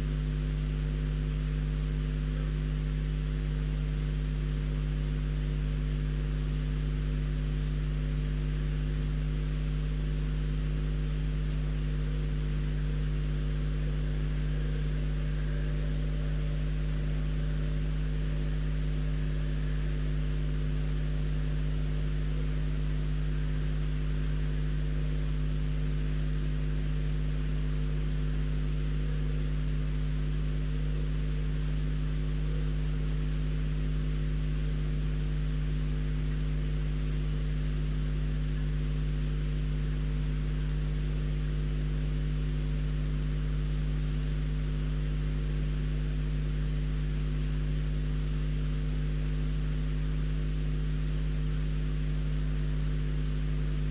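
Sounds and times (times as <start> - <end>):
steady low electrical hum: 0.0 - 53.9
thin high whine: 10.5 - 42.1
constant hiss: 11.0 - 53.9.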